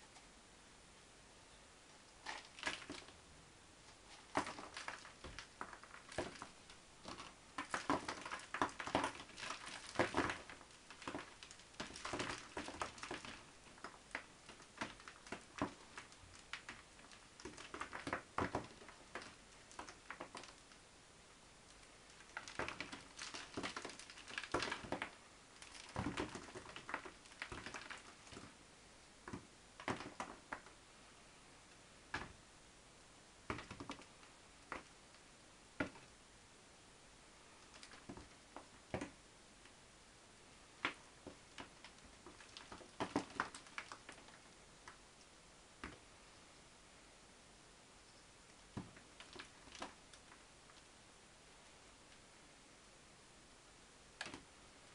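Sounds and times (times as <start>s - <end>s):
potting bark crackling and rustling: 1.9s - 3.2s, 3.8s - 20.9s, 21.5s - 32.5s, 33.4s - 36.2s, 37.4s - 39.8s, 40.6s - 46.1s, 48.0s - 51.0s.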